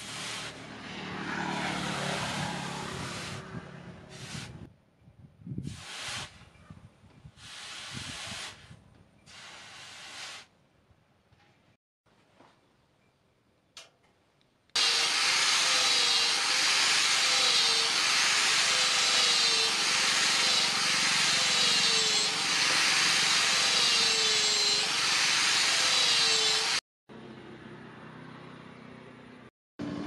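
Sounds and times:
angle grinder sanding wood: 0:14.8 - 0:26.8.

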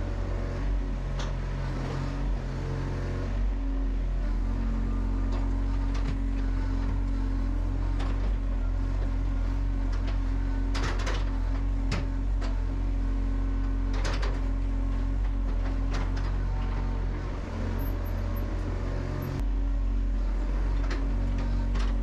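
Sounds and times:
excavator engine humming: 0:00.0 - 0:22.0.

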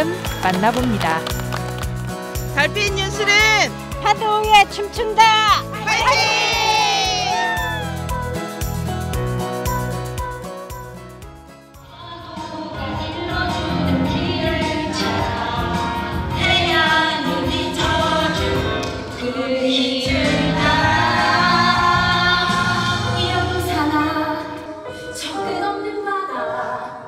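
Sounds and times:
chorus of women singing: 0:11.9 - 0:24.4.

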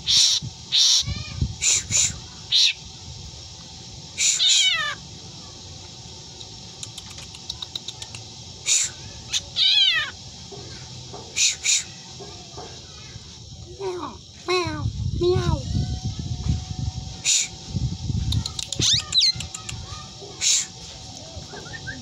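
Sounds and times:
bird mimicking cat meows: 0:00.1 - 0:01.8, 0:04.2 - 0:05.0, 0:09.3 - 0:10.2, 0:18.8 - 0:19.7
bird clicks: 0:06.4 - 0:08.3, 0:18.3 - 0:19.9.

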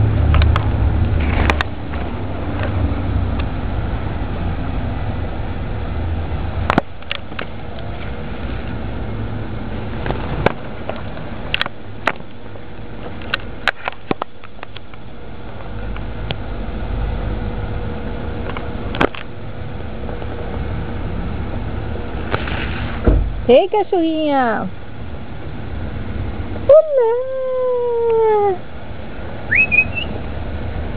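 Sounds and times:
leaves brushing against camera: 0:22.2 - 0:23.0
microphone handling rumble: 0:22.3 - 0:23.5.

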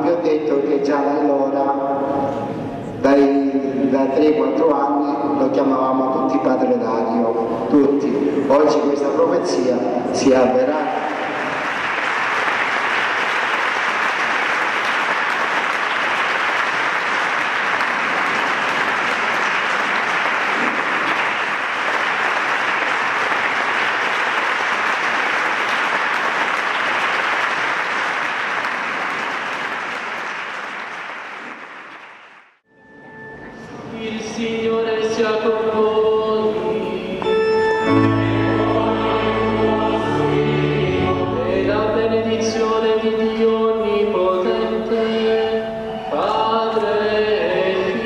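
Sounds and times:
congregation applauding: 0:10.8 - 0:32.6.

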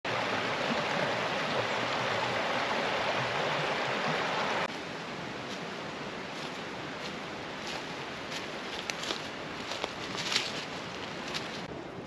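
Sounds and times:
creek rippling over rocks: 0:00.0 - 0:11.7
footstep in dry leaves: 0:04.7 - 0:11.7.

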